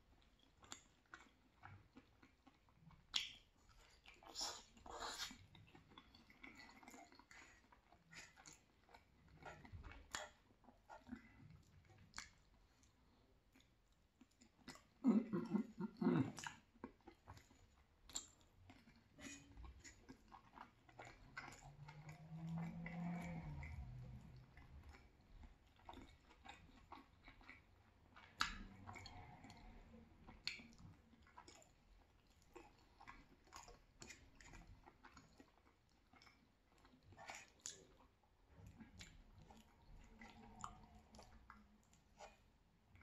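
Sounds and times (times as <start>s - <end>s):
chewing pasta: 0.0s - 43.0s
wet mouth clicks: 2.5s - 8.6s, 13.5s - 17.4s, 28.2s - 31.7s.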